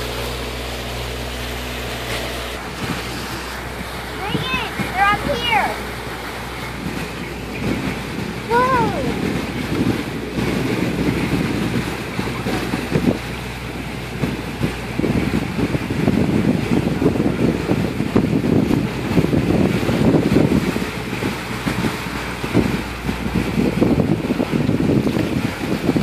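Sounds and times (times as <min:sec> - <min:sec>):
wind buffeting microphone: 0:02.5 - 0:26.0.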